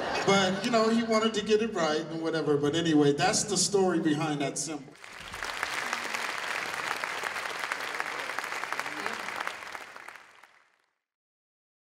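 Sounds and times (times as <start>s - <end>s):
voices among clapping: 5.0s - 10.7s
audience applauding: 5.0s - 10.9s.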